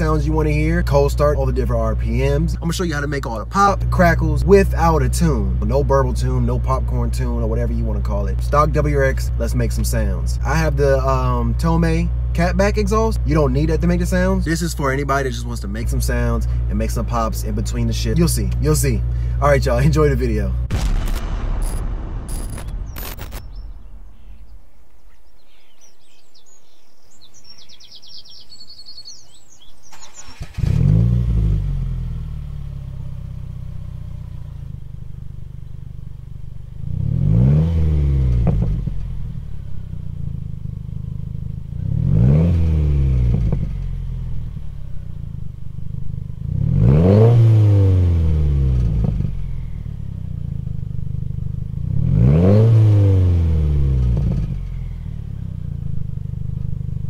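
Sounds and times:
car engine starting and revving: 0:00.0 - 0:57.0
birds chirping: 0:06.1 - 0:20.5, 0:22.3 - 0:31.0.

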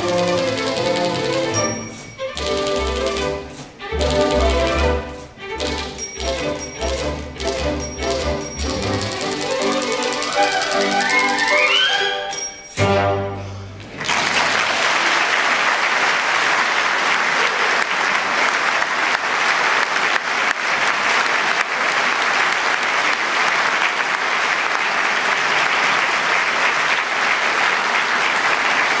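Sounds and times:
audience applauding: 0:13.8 - 0:29.0.

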